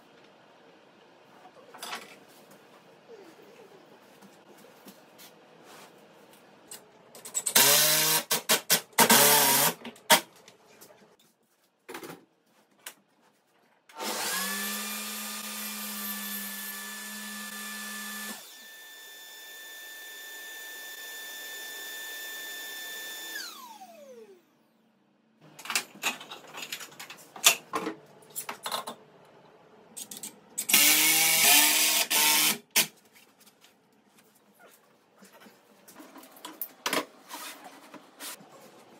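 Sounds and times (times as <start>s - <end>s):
power tool motor winding down: 14.0s - 18.6s.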